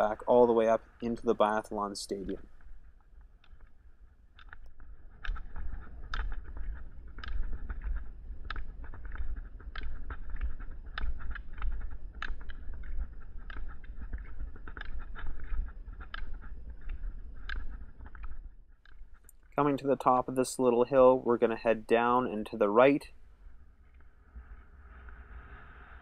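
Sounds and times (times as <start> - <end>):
ski pole tips clicking on asphalt: 2.0 - 19.6.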